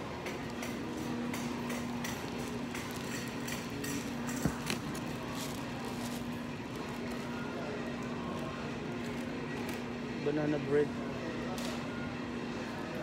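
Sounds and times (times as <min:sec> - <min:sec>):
ticks and rustles of handling: 0:00.3 - 0:08.4.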